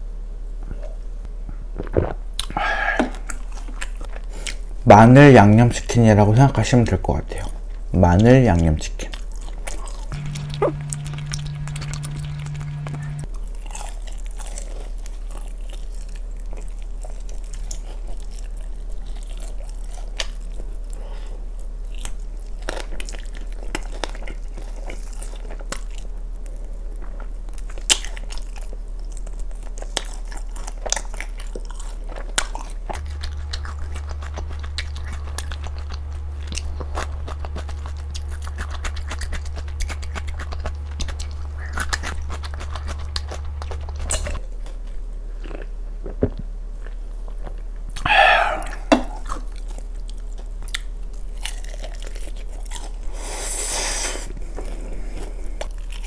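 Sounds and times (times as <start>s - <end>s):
steady low hum: 0.0s - 27.5s, 30.6s - 53.3s
wet mouth sounds: 1.7s - 4.6s, 9.5s - 13.3s, 48.0s - 49.7s
chewing crunchy fried chicken: 1.8s - 56.0s.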